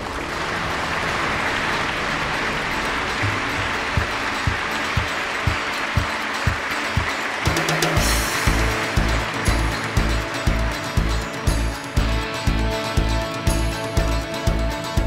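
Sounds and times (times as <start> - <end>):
audience applauding: 0.0 - 15.0
music with low beat: 3.2 - 15.0.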